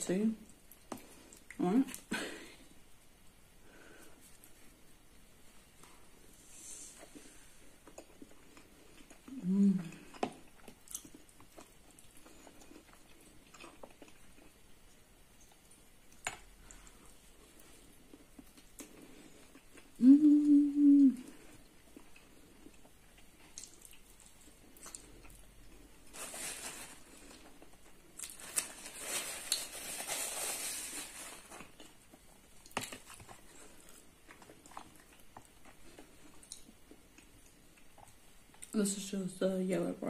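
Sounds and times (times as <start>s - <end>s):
chewing flatbread: 5.8s - 20.4s, 21.2s - 26.2s, 26.8s - 38.8s
person humming mmm: 9.3s - 10.1s, 19.9s - 21.5s
paper towel rustling: 26.1s - 27.2s, 28.4s - 31.6s.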